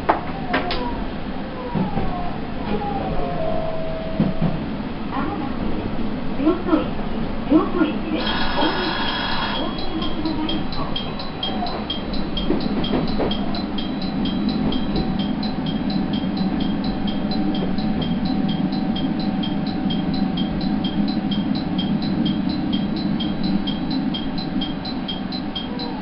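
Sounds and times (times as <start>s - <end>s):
railcar engine rumble: 0.0s - 26.0s
high ticking: 8.2s - 26.0s.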